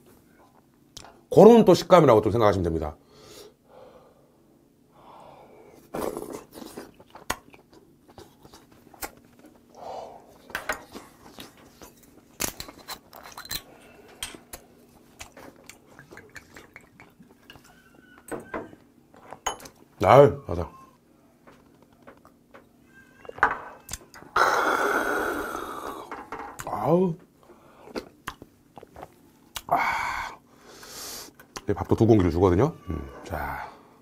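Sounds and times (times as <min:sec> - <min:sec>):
close chewing with wet mouth sounds: 0:06.2 - 0:09.7, 0:14.5 - 0:18.0, 0:27.8 - 0:29.7.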